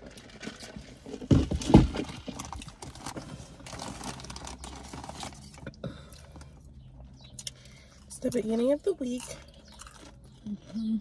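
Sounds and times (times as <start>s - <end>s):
paper wrappers crinkling: 0.0s - 5.7s.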